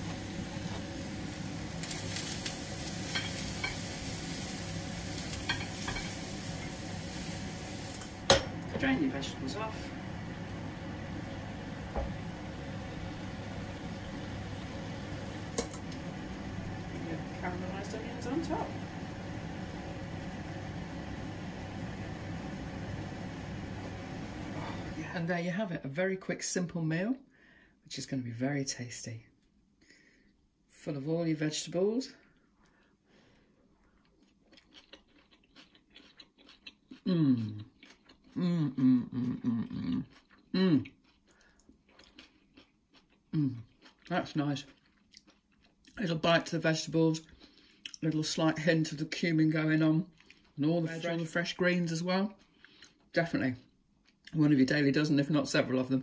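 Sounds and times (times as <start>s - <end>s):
kitchen appliance humming: 0.0s - 25.3s
person chewing crunchy food: 33.7s - 46.0s, 50.1s - 50.6s
person humming with mouth full: 37.1s - 37.6s, 38.4s - 40.0s, 40.6s - 40.9s.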